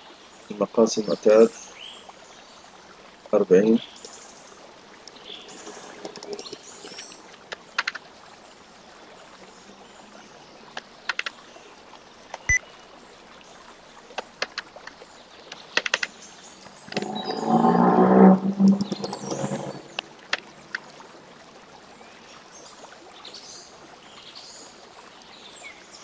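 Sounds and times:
keyboard typing: 0:14.4 - 0:14.7, 0:15.8 - 0:16.1.

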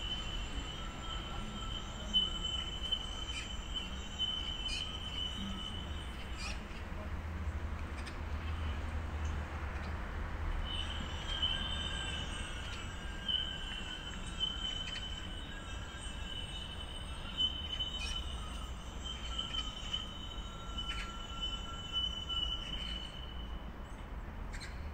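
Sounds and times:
fainter lower tone: 0:00.0 - 0:07.1
high-pitched squeal: 0:00.0 - 0:07.1, 0:10.5 - 0:23.8.

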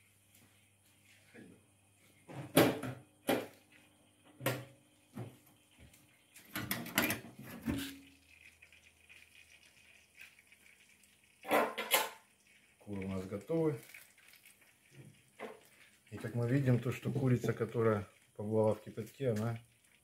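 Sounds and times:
metal lid and tray clattering: 0:06.6 - 0:08.0, 0:11.5 - 0:12.2.

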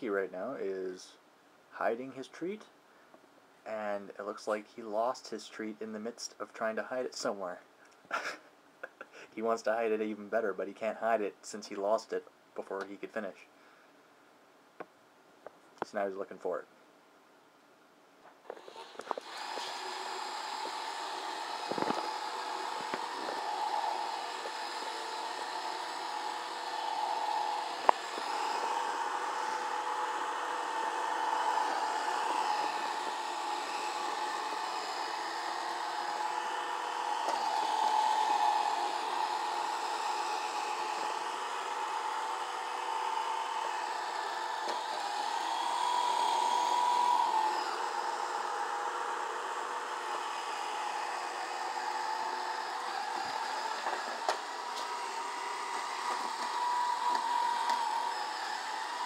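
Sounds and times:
robot vacuum whine: 0:18.5 - 0:59.0.

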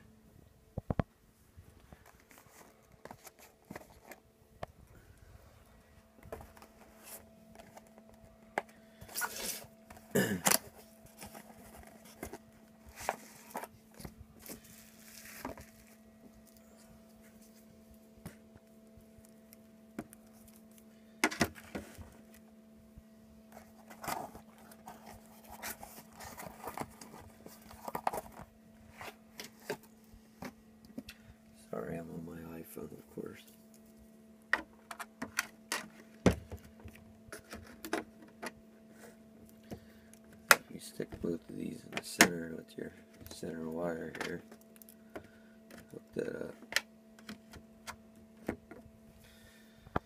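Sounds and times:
faint steady hum: 0:00.0 - 0:50.0
plastic handling scrapes and knocks: 0:02.0 - 0:04.2, 0:06.2 - 0:15.9, 0:23.5 - 0:31.1, 0:34.6 - 0:41.2.

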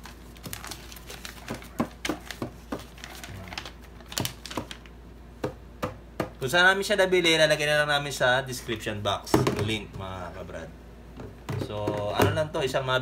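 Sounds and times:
paper and plastic crinkling: 0:00.0 - 0:04.9.

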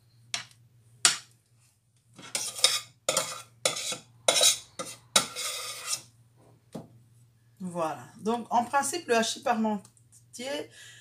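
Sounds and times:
spoon scraping metal pot: 0:02.2 - 0:06.2.

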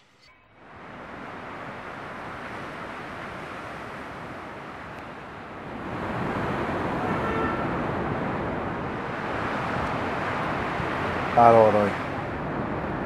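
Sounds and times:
road traffic rushing: 0:00.0 - 0:13.0
car horn: 0:06.9 - 0:07.8.

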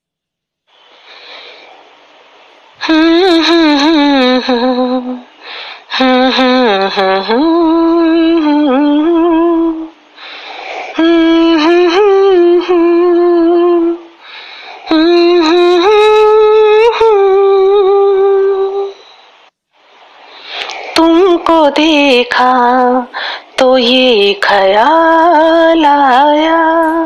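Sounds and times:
person humming a slow melody: 0:02.8 - 0:10.0, 0:10.9 - 0:14.2, 0:14.9 - 0:19.2, 0:20.9 - 0:27.0.

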